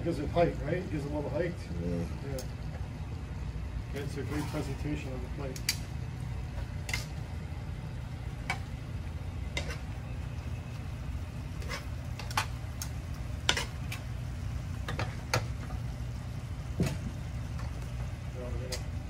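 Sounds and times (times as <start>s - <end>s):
low hum: 0.0s - 19.0s
metal spoons clinking in a pan: 6.8s - 7.1s, 9.5s - 9.8s, 13.4s - 13.8s.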